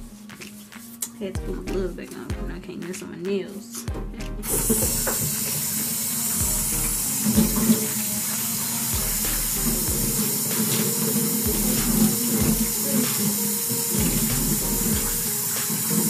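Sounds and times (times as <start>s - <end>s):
tap water running into sink: 4.4s - 16.0s
water splashing over hair: 6.3s - 16.0s.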